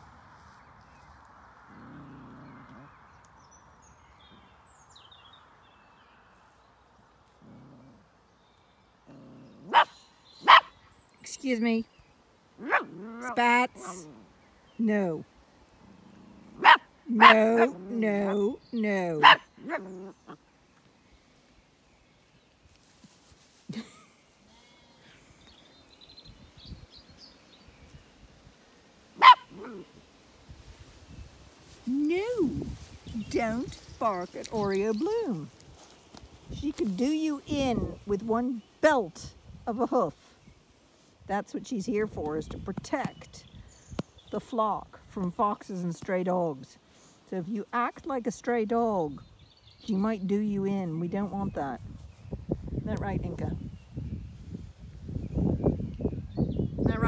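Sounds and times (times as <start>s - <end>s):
faint birds chirping: 0.0s - 57.0s
puppy barking: 9.7s - 10.7s, 12.6s - 13.1s, 16.6s - 17.8s, 19.2s - 19.9s, 29.2s - 29.9s.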